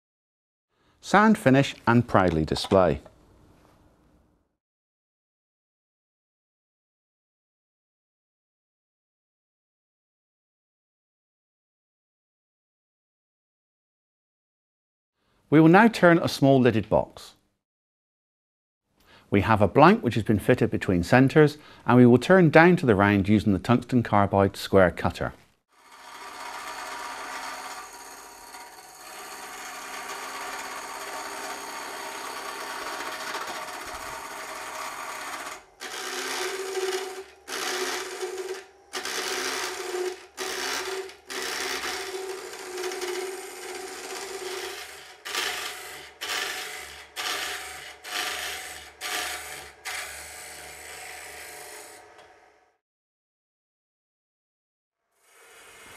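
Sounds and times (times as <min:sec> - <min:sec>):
wood lathe cutting shavings: 0:25.8 - 0:52.6, 0:55.2 - 0:55.9.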